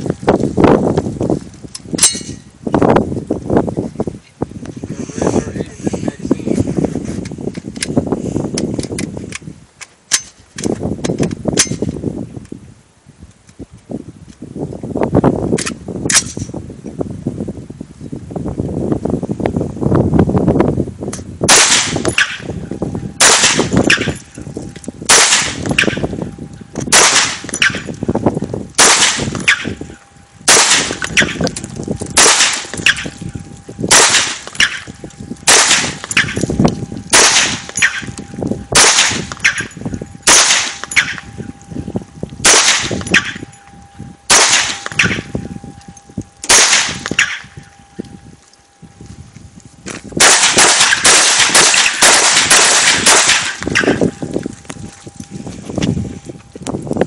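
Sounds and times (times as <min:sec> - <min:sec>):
rifle gunshots: 0:21.5 - 0:22.4, 0:23.2 - 0:24.1, 0:25.1 - 0:26.0, 0:26.9 - 0:27.8, 0:28.8 - 0:29.8, 0:30.5 - 0:31.4, 0:32.2 - 0:33.1, 0:33.9 - 0:36.4, 0:37.1 - 0:38.1, 0:38.8 - 0:41.3, 0:42.4 - 0:43.4, 0:44.3 - 0:45.2, 0:46.5 - 0:47.4, 0:50.2 - 0:54.0.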